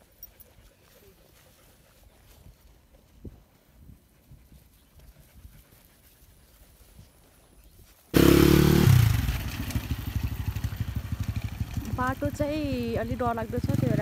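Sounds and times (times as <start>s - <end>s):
faint outdoor background: 0.0s - 14.0s
motorcycle engine on dirt track: 8.0s - 14.0s.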